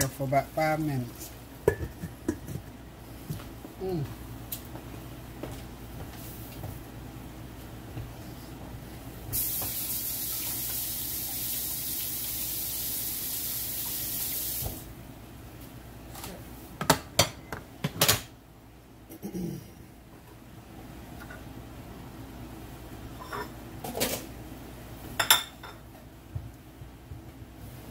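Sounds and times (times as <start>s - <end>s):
kitchen tap running: 9.3s - 14.9s.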